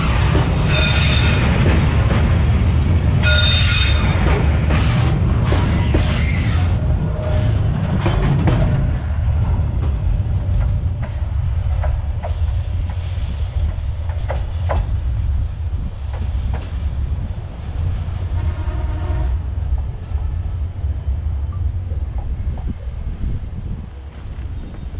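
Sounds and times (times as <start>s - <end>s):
freight train wagons clattering: 0.0s - 15.2s
train wheels rumbling: 0.0s - 24.9s
sharp clicks from rails: 9.7s - 15.0s.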